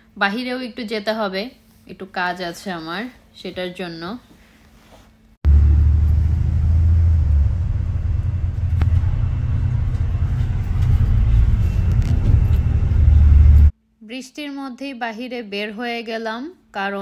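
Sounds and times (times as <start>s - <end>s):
bus rumbling in motion: 5.4s - 13.7s.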